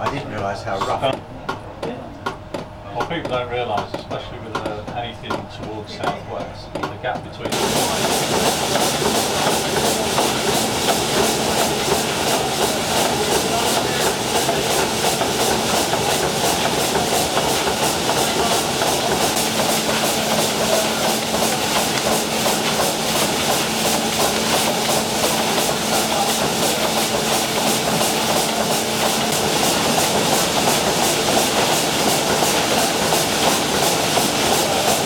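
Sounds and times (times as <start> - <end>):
steam engine rhythmic clatter: 2.2 - 35.0
steady hum: 7.4 - 35.0.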